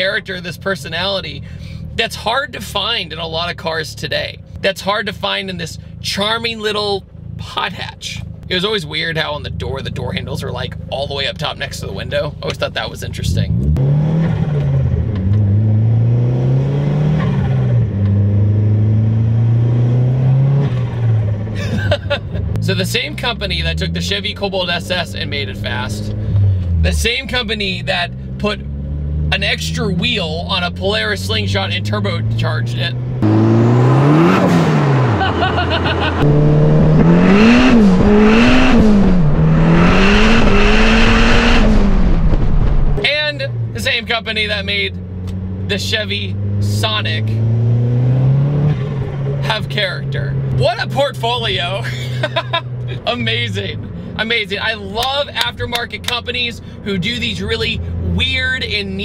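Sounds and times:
car engine pulling under load: 13.3s - 22.6s, 28.1s - 43.8s, 44.9s - 50.7s, 51.4s - 58.2s.

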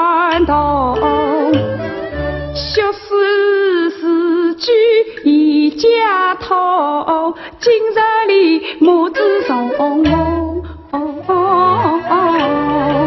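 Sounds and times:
woman singing opera: 0.0s - 1.6s, 2.6s - 13.0s
instrumental accompaniment: 0.0s - 3.2s, 8.8s - 13.0s.

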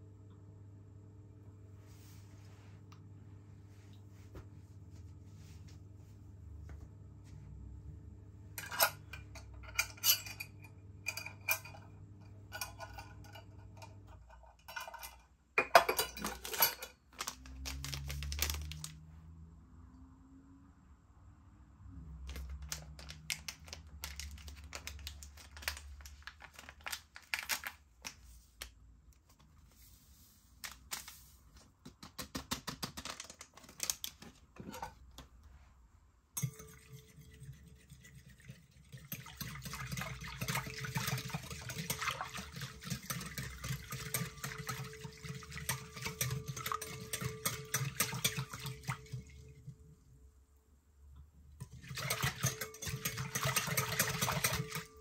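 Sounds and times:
clinks and scrapes in a bowl: 8.6s - 18.7s, 34.6s - 35.2s, 36.4s - 49.6s, 51.6s - 55.0s.

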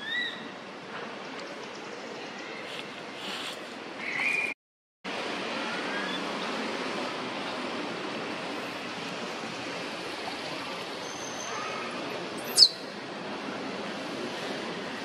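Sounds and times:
steady rushing background noise: 5.1s - 15.0s.

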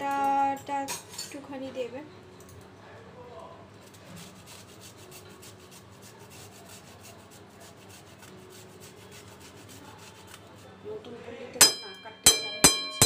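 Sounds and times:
ginger grated on metal grater: 4.0s - 10.7s.

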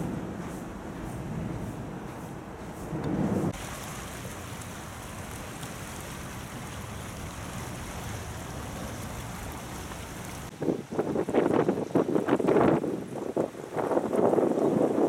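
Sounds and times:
brief low rumble: 0.0s - 3.6s
water rushing against rocks: 3.5s - 15.0s.

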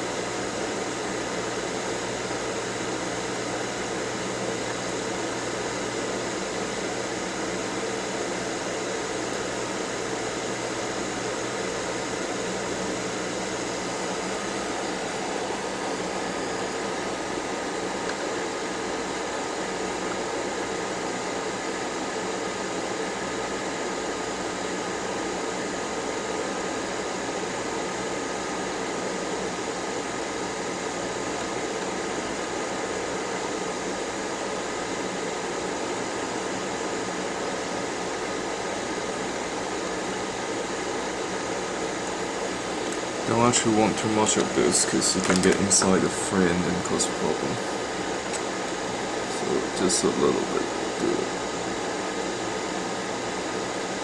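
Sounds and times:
faint fan whine: 0.0s - 54.0s.

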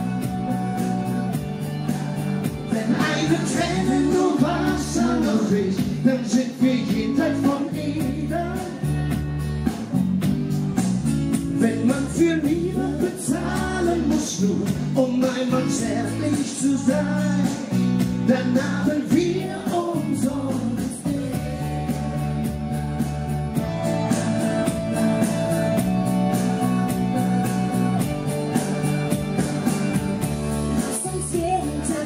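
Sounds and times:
backing music with guitar: 0.0s - 32.0s
man and woman singing: 2.7s - 8.9s, 11.6s - 22.3s, 30.8s - 32.0s.

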